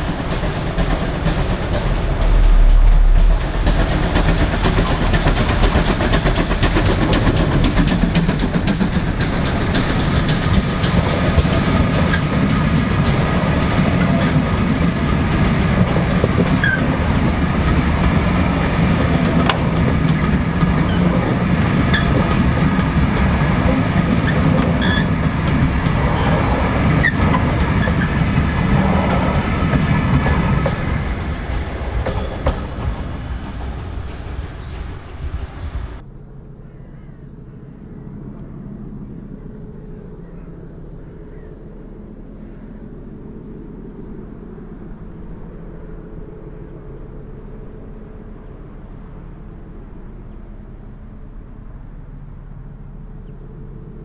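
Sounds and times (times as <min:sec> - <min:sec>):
clickety-clack of train wheels: 0:00.0 - 0:36.0
steam engine exhaust beats: 0:00.0 - 0:54.0.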